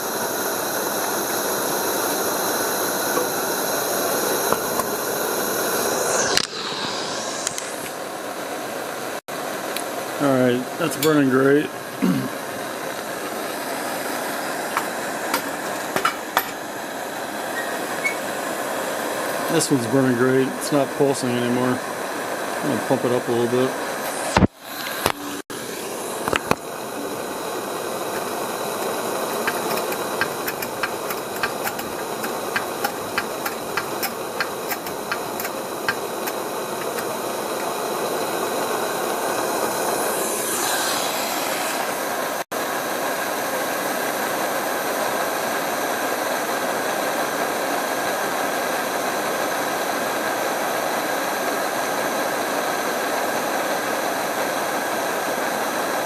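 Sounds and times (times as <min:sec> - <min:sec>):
pressure lanterns hissing: 0:00.0 - 0:56.0
rapid clicks of hand pump: 0:28.2 - 0:37.7.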